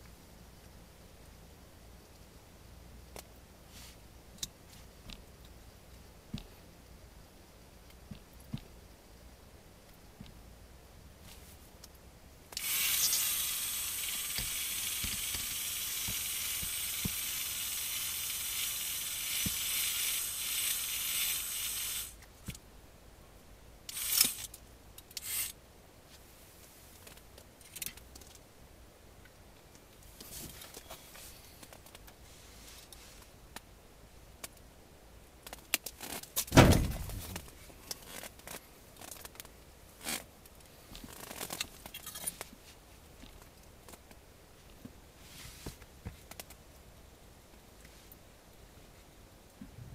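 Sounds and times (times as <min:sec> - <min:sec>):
fishing reel whirring: 0:12.6 - 0:22.2, 0:23.9 - 0:24.5, 0:25.2 - 0:25.6
loud thump: 0:36.5 - 0:37.5.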